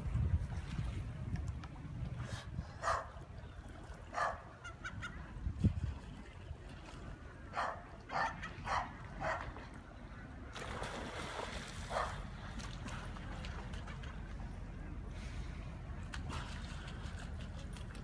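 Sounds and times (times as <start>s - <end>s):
dog barking: 2.8s - 3.1s, 4.2s - 4.4s, 7.6s - 9.4s, 11.9s - 12.1s.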